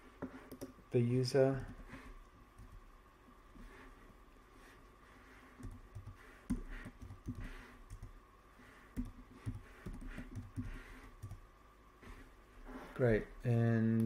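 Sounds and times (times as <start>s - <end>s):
computer keyboard typing: 0.5s - 0.7s, 5.6s - 8.1s, 9.0s - 11.4s.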